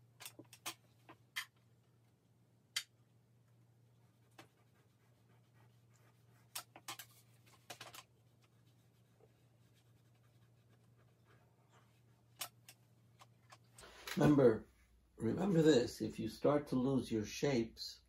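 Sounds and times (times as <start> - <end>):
pencil scratching on paper: 4.0 - 12.4.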